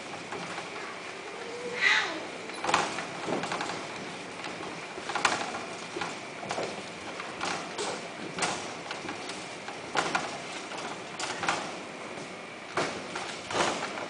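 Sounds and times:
kittens knocking and scrabbling in cage: 2.5 - 11.8.

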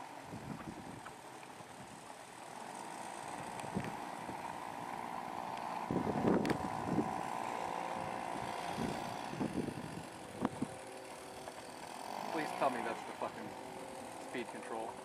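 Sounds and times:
outboard motor running: 0.0 - 15.0
wind buffeting microphone: 0.2 - 1.1, 5.8 - 10.8.

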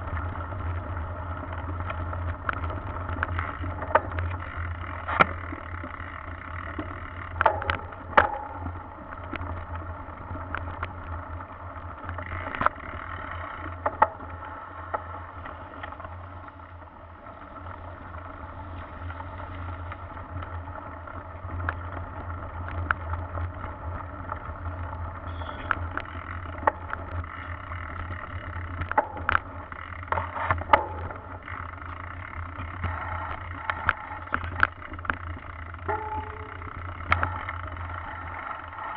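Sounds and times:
bike knocks and rattles: 0.0 - 38.9
bike rolling noise: 0.0 - 38.9.

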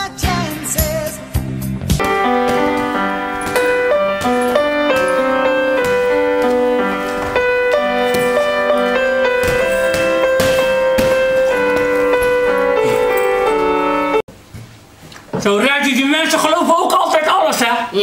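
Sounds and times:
pop music with a beat: 0.0 - 2.2
slow piano music: 2.0 - 14.3.

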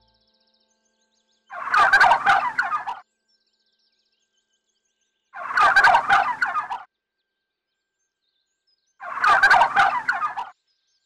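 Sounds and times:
bird gobbling call: 1.5 - 3.0, 5.4 - 6.9, 9.0 - 10.5.

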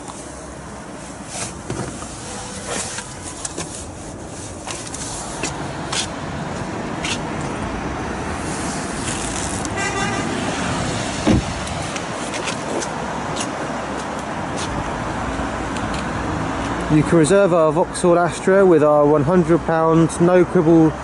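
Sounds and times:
traffic noise: 0.0 - 21.0
handling clicks and rustles: 1.1 - 7.6, 11.2 - 16.9
short horn toot: 9.7 - 10.4
dull thump: 11.2 - 11.5.

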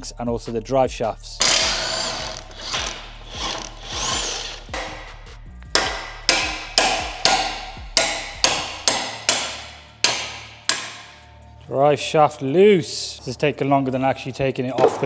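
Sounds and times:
sledgehammer striking metal shaft: 1.4 - 11.3.

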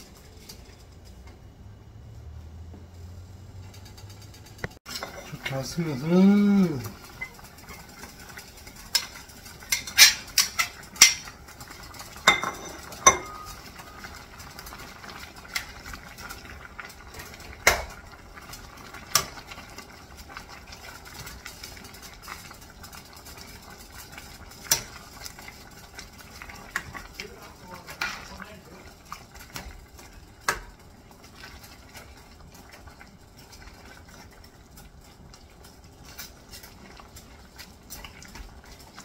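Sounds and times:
faint steady hiss: 0.0 - 39.0
metal ladle clinking and scraping: 12.2 - 13.9.

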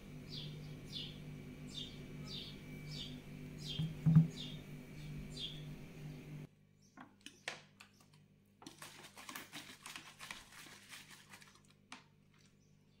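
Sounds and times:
plastic bottle crinkling and crackling: 8.6 - 12.6.

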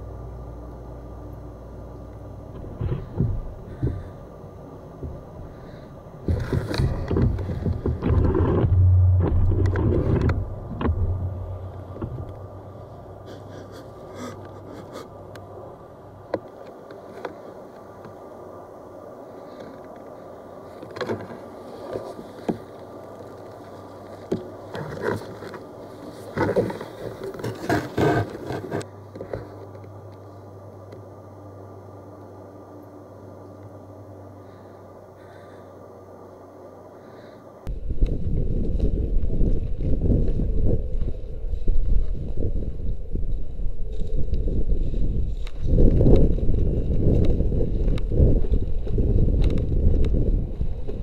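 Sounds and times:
wind rumbling: 2.3 - 28.9, 37.7 - 51.0
microphone handling noise: 2.5 - 4.2, 6.2 - 12.5
sharp knocks and clicks: 6.3 - 12.4.

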